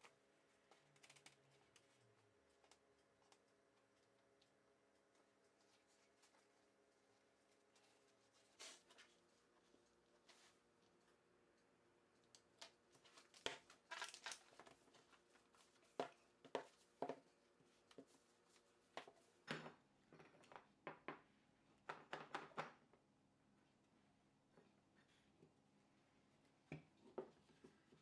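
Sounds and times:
paper rustling: 12.9 - 16.9.

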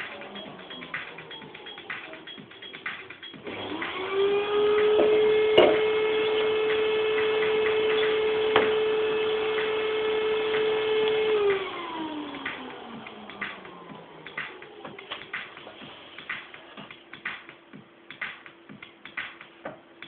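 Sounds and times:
small electric motor humming: 3.5 - 13.0.

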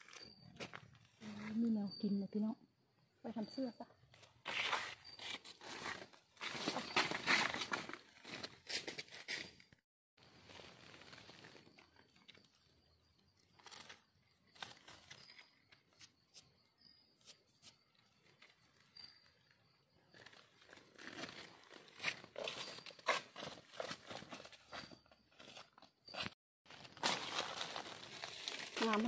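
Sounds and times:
dry leaves rustling: 26.7 - 29.0
footsteps crunching through leaves: 26.7 - 29.0.

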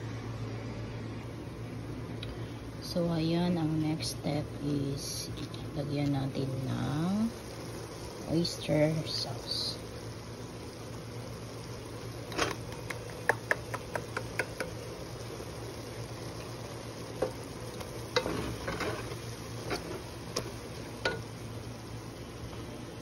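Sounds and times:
soft sizzle of stir-fry: 0.0 - 23.0
spatula scraping a pot: 18.2 - 20.1.

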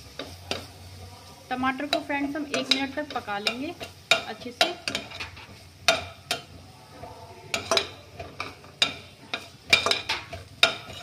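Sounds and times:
soft sizzle: 0.0 - 11.0
spatula scraping metal pan: 1.8 - 6.6, 7.5 - 11.0.

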